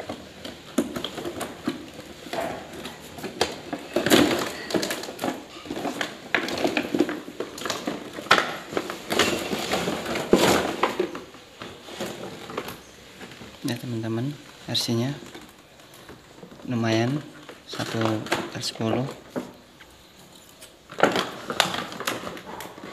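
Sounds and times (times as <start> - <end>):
cardboard flaps rustling and scraping: 0.0 - 22.9
plastic packaging crinkling: 0.0 - 22.9.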